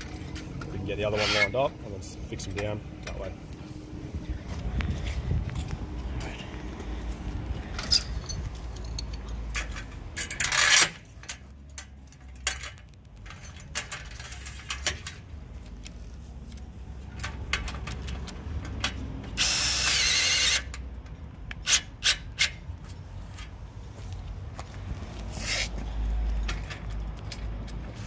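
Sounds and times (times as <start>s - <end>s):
cordless drill driving screw: 19.4s - 20.7s.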